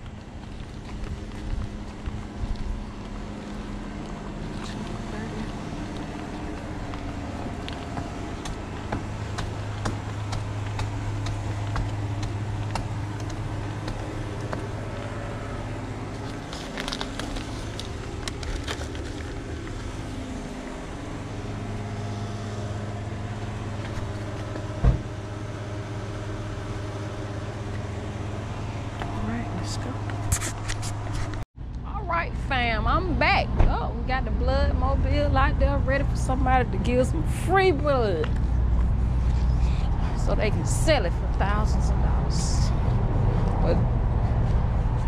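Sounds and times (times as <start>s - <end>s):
steady low hum: 0.0s - 45.0s
paper bag handling: 16.0s - 20.1s
loud thump: 24.8s - 25.1s.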